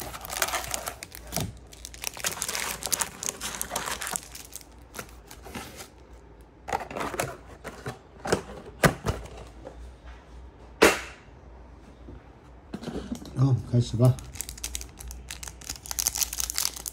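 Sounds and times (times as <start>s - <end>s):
plastic wrap crinkling and tearing: 0.0s - 6.0s, 14.0s - 16.9s.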